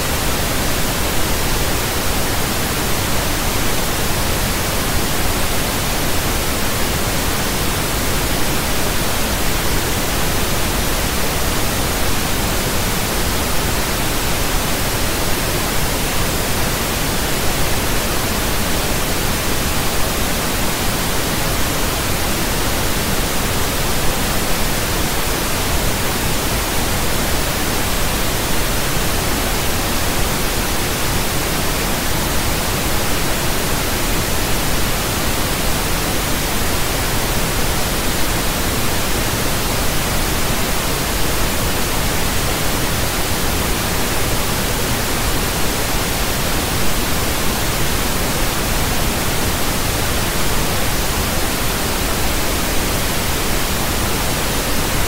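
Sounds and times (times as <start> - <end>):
pink noise hiss: 0.0 - 55.0.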